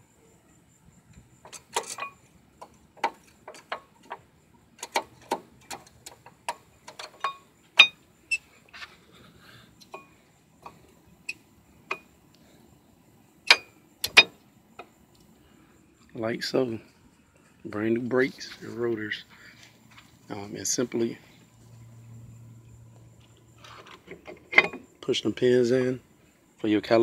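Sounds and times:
metallic clicks of brake pads: 0:01.1 - 0:08.4, 0:09.8 - 0:12.5, 0:13.4 - 0:15.3.

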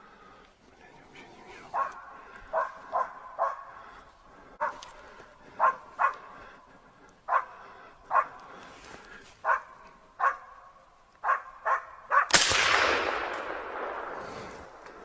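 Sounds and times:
dog barking: 0:01.7 - 0:03.9, 0:04.6 - 0:06.4, 0:07.3 - 0:08.4, 0:09.4 - 0:12.3
rifle shot echoing: 0:12.2 - 0:15.0.

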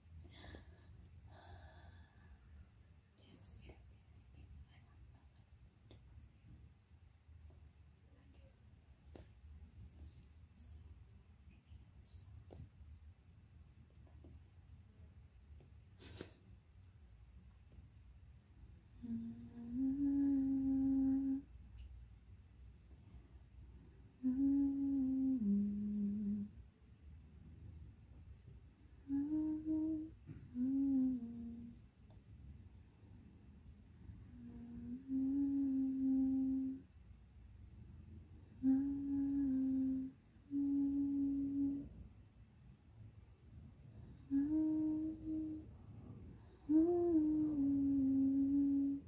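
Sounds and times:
person humming: 0:19.0 - 0:21.6, 0:24.1 - 0:26.6, 0:29.0 - 0:31.8, 0:34.3 - 0:36.9, 0:38.6 - 0:41.9, 0:44.1 - 0:45.7, 0:46.4 - 0:49.0.

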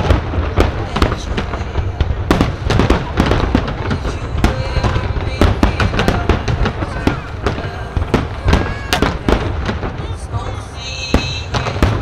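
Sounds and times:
fireworks bursting and crackling: 0:00.0 - 0:12.0.

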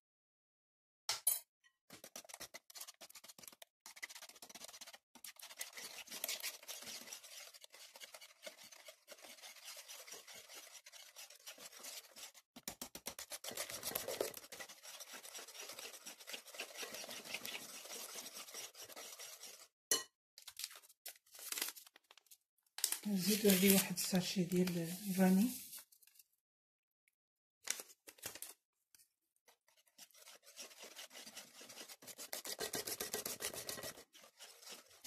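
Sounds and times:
whisk beating in ceramic bowl: 0:01.9 - 0:19.7, 0:29.6 - 0:35.0.

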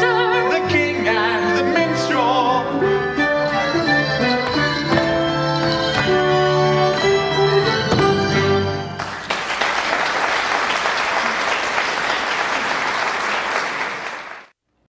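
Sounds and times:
audience applauding: 0:08.9 - 0:14.5.

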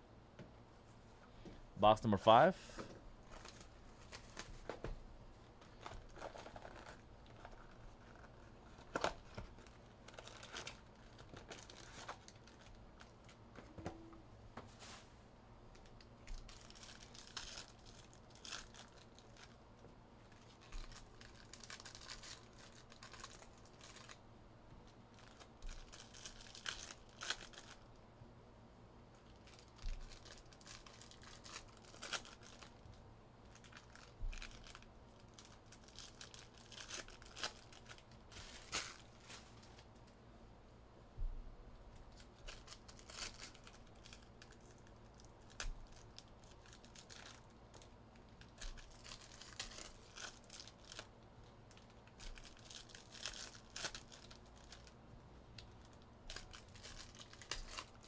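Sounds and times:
packaging tearing and crinkling: 0:03.3 - 0:04.6, 0:05.6 - 0:13.4, 0:15.8 - 0:19.6, 0:20.3 - 0:24.2, 0:25.1 - 0:27.9, 0:29.2 - 0:32.9, 0:33.5 - 0:39.9, 0:42.1 - 0:55.0, 0:55.8 - 0:58.0.

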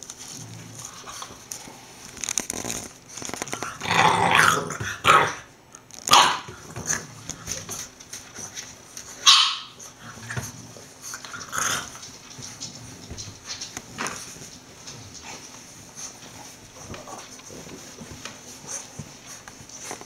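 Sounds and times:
puppies growling: 0:00.1 - 0:20.0
puppies barking: 0:06.1 - 0:06.9, 0:09.1 - 0:10.4.

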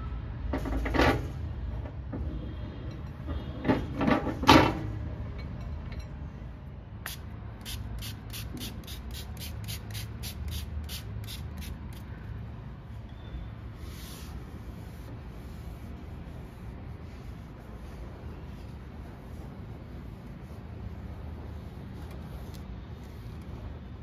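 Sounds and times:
spray bottle pumping: 0:07.0 - 0:12.1.

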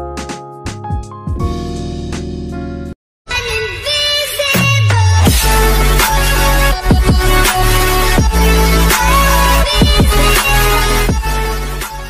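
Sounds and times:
electronic music with heavy bass: 0:04.6 - 0:12.0.

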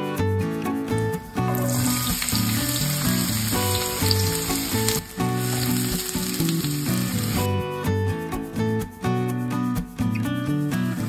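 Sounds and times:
onions sizzling in oil: 0:01.4 - 0:07.5.

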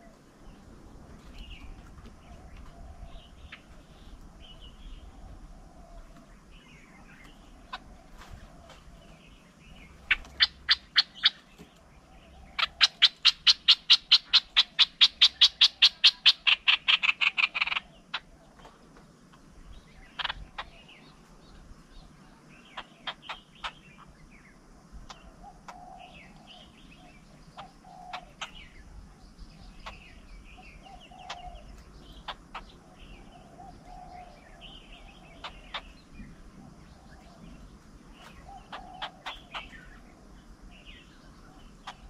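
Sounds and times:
faint bird chirps: 0:00.0 - 0:42.0
animal clicking calls: 0:12.6 - 0:18.3.

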